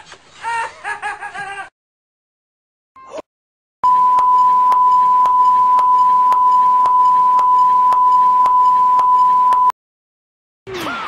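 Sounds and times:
steady beep tone: 3.8 - 9.8.

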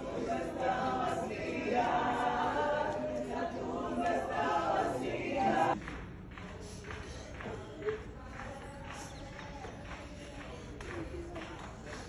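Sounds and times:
distant group singing unaccompanied: 0.0 - 5.8.

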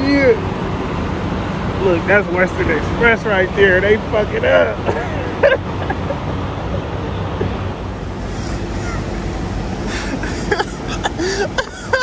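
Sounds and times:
water gushing from hydrant: 7.8 - 12.0.

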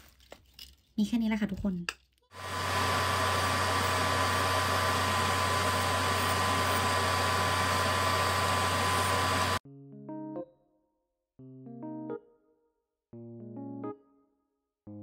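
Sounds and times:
dust collector fan rushing: 2.4 - 9.6
nail drill whining: 2.4 - 9.6.

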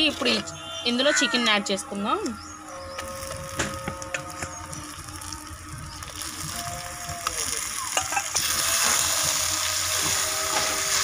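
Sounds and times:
chicken sizzling in hot oil: 3.1 - 11.0.

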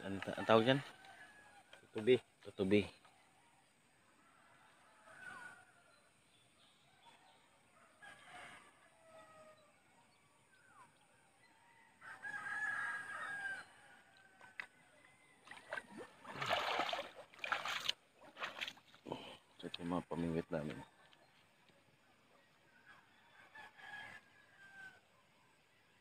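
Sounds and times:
rooster crowing: 12.0 - 14.1, 23.3 - 25.0
footsteps through grass and mud: 15.5 - 19.1.

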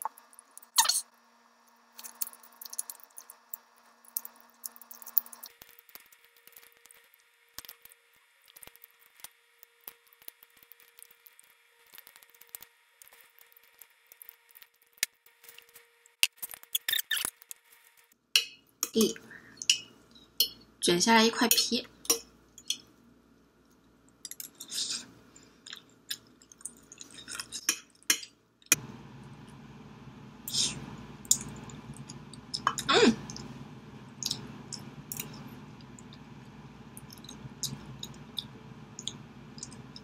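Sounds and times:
faint steady hum: 18.6 - 40.0
chewing and lip smacking: 25.6 - 28.1.

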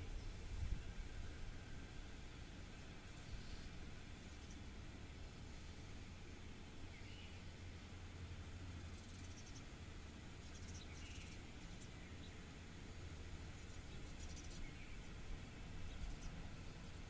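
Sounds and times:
light hiss: 0.0 - 17.0
low hum: 0.0 - 17.0
faint bird chirps: 6.8 - 7.6, 8.8 - 9.8, 10.4 - 12.5, 13.5 - 15.1, 15.8 - 16.5.

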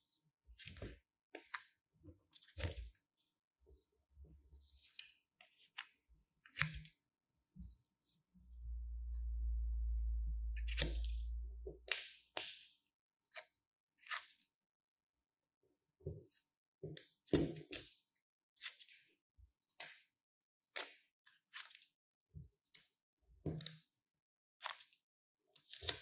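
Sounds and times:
low rumble: 8.4 - 11.9.

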